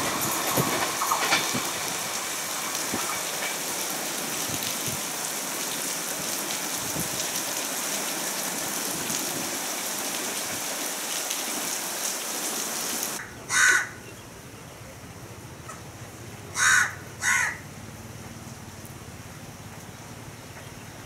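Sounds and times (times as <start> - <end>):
heavy rain pouring: 0.0 - 14.0, 15.0 - 21.0
crow cawing: 13.2 - 14.0, 16.5 - 17.6.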